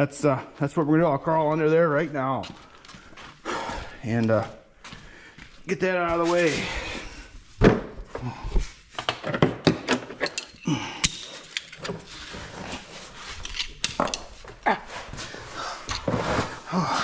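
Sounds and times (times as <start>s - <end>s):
person scuffling while crawling: 2.4s - 9.0s, 12.0s - 17.0s
tools clicking and knocking: 9.0s - 12.2s, 13.4s - 14.6s.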